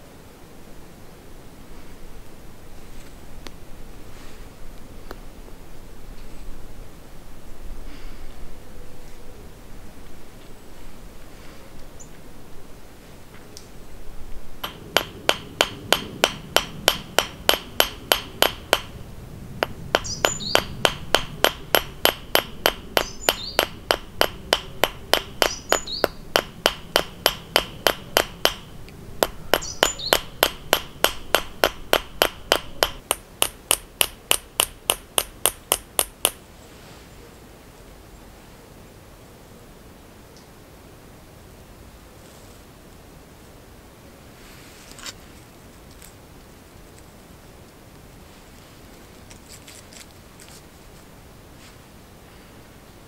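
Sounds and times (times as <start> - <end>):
small hammer tapping metal: 14.6 - 19.0, 19.6 - 36.4.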